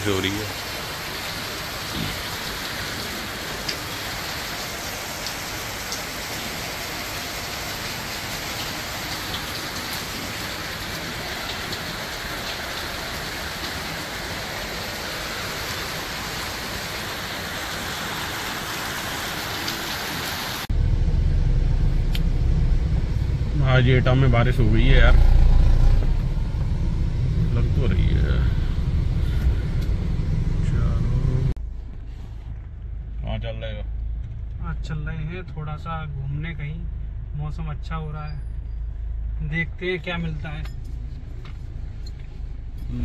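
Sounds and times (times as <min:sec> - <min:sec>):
rain pattering: 0:00.0 - 0:31.5
loud low rumble: 0:20.7 - 0:31.9.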